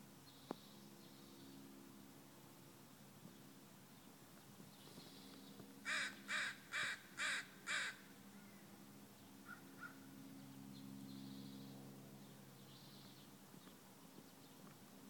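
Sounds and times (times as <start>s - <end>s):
bird harsh calls: 5.9s - 8.0s.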